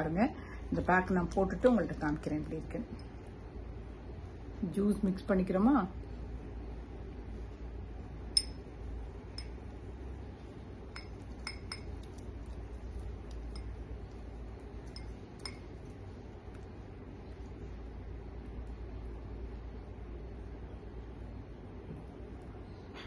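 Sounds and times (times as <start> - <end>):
brush clinking against ceramic bowl: 8.4 - 8.7, 9.3 - 9.6, 10.9 - 16.6.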